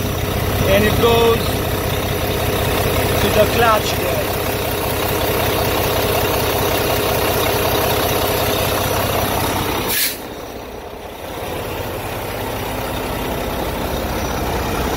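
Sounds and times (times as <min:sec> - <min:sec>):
diesel truck engine idling: 0:00.0 - 0:14.9
brief hiss: 0:09.9 - 0:10.3.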